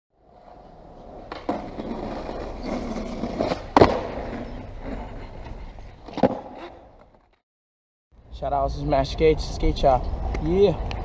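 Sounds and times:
skateboard wheels rolling on paving: 0.2s - 7.4s.

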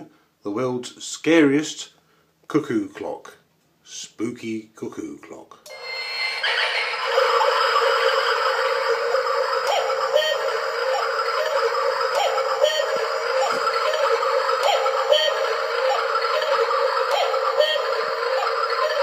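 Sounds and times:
wavering electronic tone: 5.7s - 19.0s.

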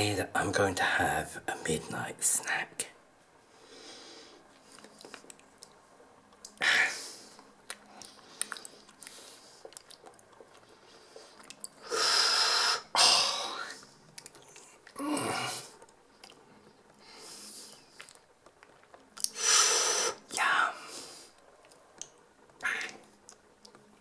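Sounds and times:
man making mock chewing noises: 7.6s - 10.6s.

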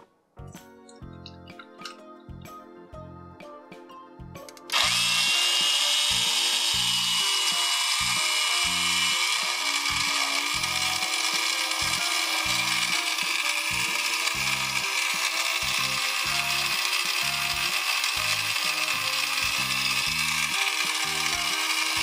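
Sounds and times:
background music: 0.0s - 22.0s
toy coffee maker pump motor: 4.7s - 22.0s.

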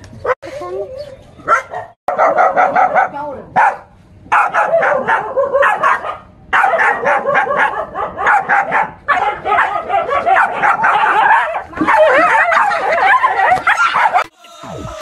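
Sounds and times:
small dog barking: 1.4s - 14.3s.

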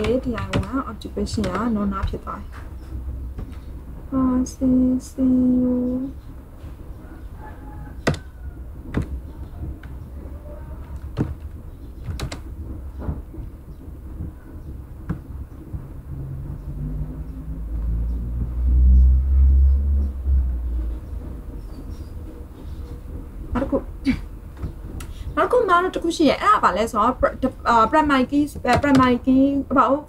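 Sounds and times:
keyboard and mouse clicks: 0.0s - 2.2s, 8.0s - 8.2s, 12.0s - 12.5s
low background hum: 0.0s - 30.0s
low rumble: 0.7s - 28.3s.

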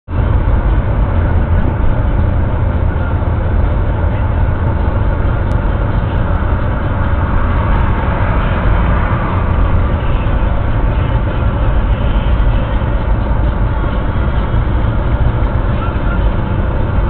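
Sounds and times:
car interior road rumble: 0.1s - 17.0s.

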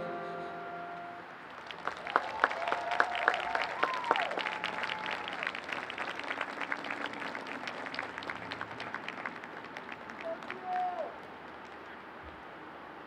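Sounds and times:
wavering held bagpipe tones: 0.0s - 1.2s
small group clapping: 1.4s - 12.0s.

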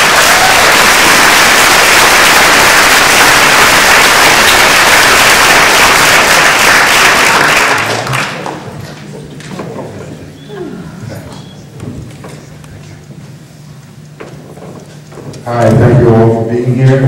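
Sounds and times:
loud audience applause: 0.0s - 8.8s.

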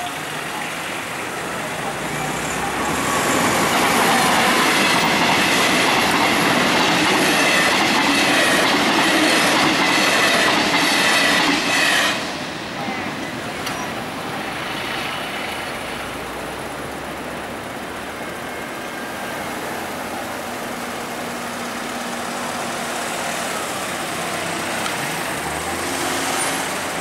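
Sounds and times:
road traffic: 0.0s - 27.0s.

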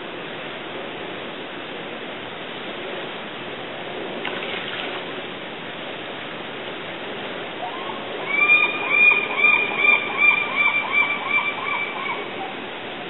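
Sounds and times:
rushing water: 0.0s - 13.0s
gull calling: 7.6s - 12.7s.

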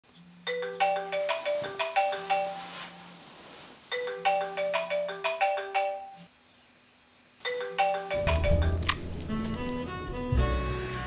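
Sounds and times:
marimba phone ringtone: 0.5s - 2.9s, 3.9s - 6.3s, 7.4s - 8.9s.

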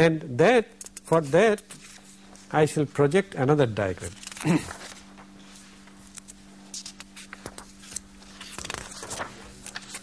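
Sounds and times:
low electrical hum: 0.0s - 10.0s
paper rustling and scraping: 4.0s - 10.0s.

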